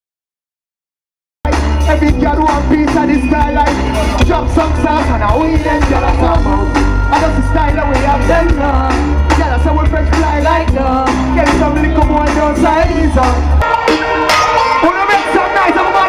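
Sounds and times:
heavy bass line: 1.4s - 16.0s
person singing into a microphone: 1.8s - 13.6s.

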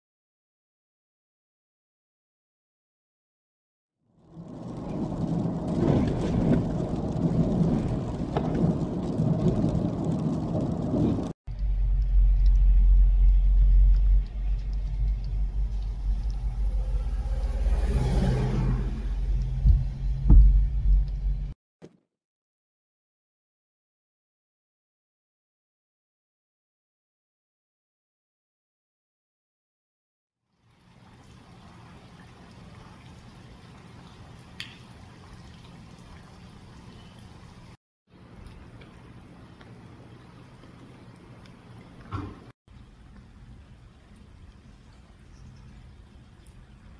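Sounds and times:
tyres on wet road: 4.1s - 21.6s, 30.5s - 46.9s
rain on car: 4.2s - 21.6s, 30.7s - 37.5s.

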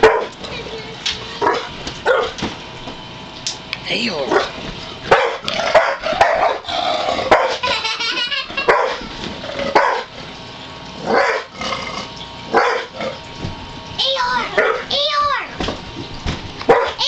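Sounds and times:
dog barking: 0.0s - 0.4s, 1.4s - 2.4s, 4.3s - 6.7s, 7.3s - 7.6s, 8.7s - 9.0s, 9.8s - 10.1s, 11.1s - 11.5s, 12.5s - 12.9s, 14.6s - 14.9s, 16.7s - 17.0s.

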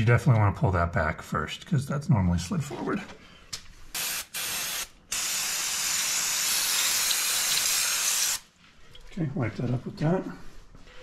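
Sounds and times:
aerosol spray can hissing: 4.0s - 8.4s.

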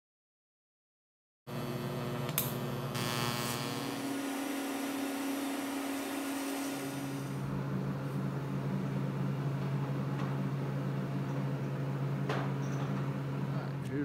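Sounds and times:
welder arc buzzing: 1.5s - 9.5s.

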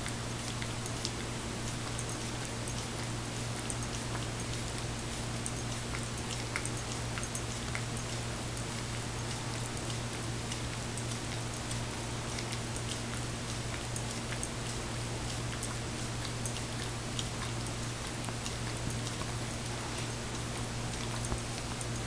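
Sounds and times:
steady low hum: 0.0s - 22.0s
dog licking from cup: 0.4s - 22.0s.

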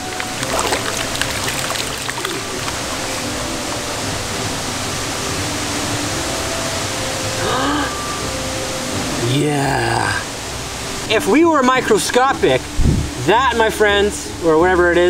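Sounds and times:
water splashing in pan: 0.0s - 3.6s
shallow stream running: 0.0s - 7.4s.

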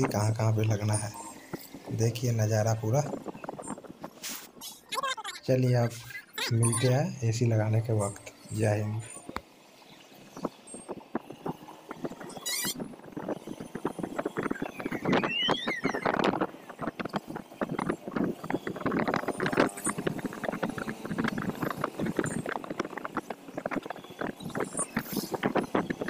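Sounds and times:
wind buffeting microphone: 0.0s - 4.9s, 7.2s - 26.0s
road traffic: 0.0s - 26.0s
motorcycle engine: 7.7s - 26.0s.

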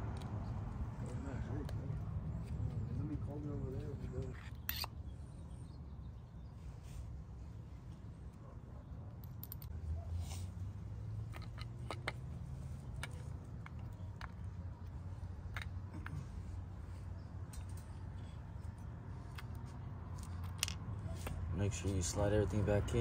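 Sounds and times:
clicks of metal and plastic parts: 11.3s - 12.2s.

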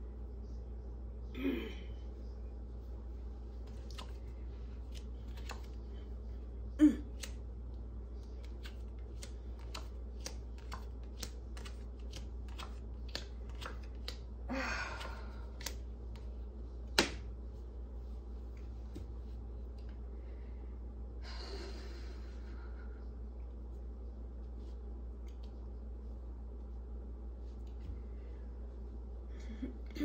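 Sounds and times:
cards shuffling and clicking: 3.6s - 5.8s, 8.2s - 14.3s, 15.5s - 16.3s.

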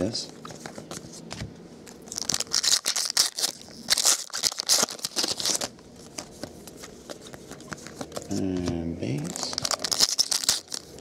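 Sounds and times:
foil wrapper tearing and crinkling: 2.0s - 5.7s, 9.2s - 11.0s.

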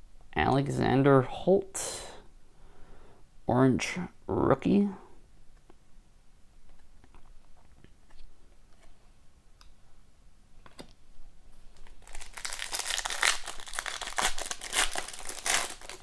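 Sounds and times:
foil wrapper tearing and crinkling: 11.8s - 16.0s.

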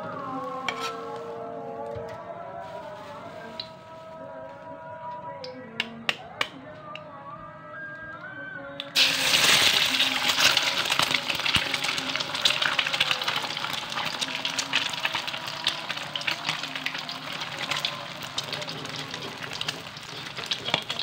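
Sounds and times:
egg sizzling in hot oil: 9.0s - 21.0s.

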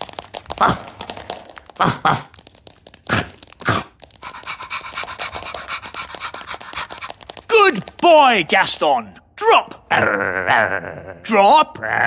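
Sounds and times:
scurrying steps patter: 0.0s - 9.2s.

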